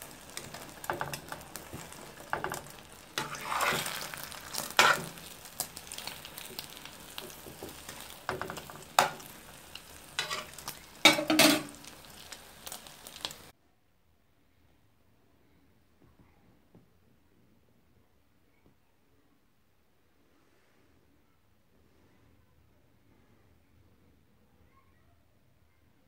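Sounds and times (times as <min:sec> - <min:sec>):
omelette sizzling in a pan: 0:00.0 - 0:13.6
metal spoon scraping a pan: 0:00.2 - 0:12.0.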